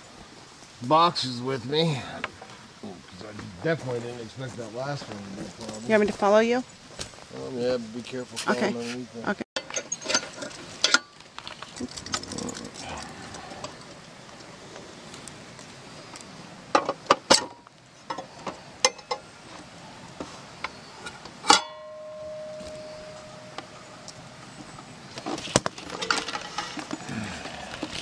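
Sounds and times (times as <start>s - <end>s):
metal cover clanging and ringing: 21.4s - 23.8s.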